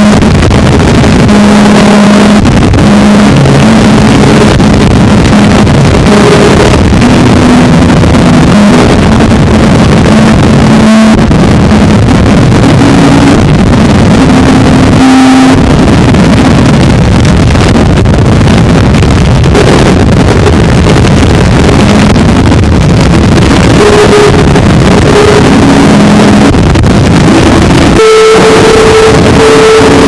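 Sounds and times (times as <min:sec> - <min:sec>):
harsh distorted noise music: 0:00.0 - 0:30.0
short held tones: 0:27.9 - 0:30.0.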